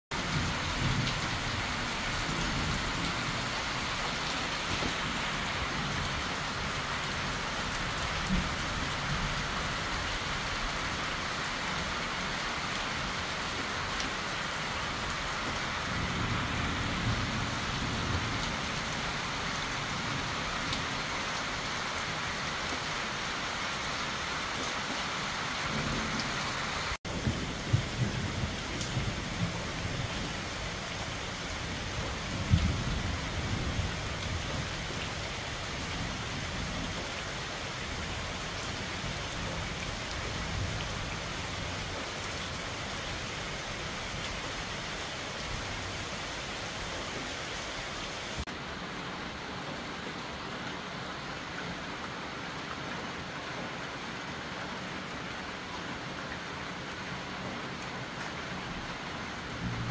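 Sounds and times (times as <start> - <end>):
heavy rain on trees and roof: 0.1 - 59.9
thunder rumbles: 27.1 - 30.8, 31.6 - 34.7, 59.6 - 59.9.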